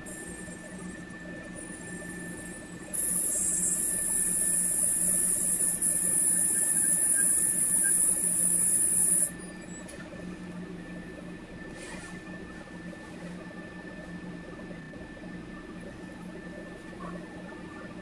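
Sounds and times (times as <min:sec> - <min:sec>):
faint steady hum: 0:00.0 - 0:18.0
high-pitched hissing whine: 0:01.7 - 0:09.4.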